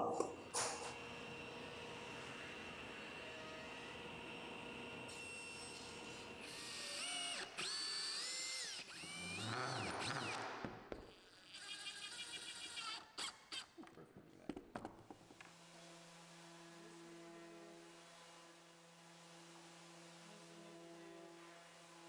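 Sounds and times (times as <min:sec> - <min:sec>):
cordless drill boring into wood: 0:05.1 - 0:13.7.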